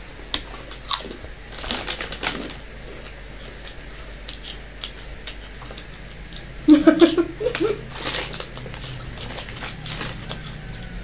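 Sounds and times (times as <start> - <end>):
chips being chewed: 0.3 - 11.0.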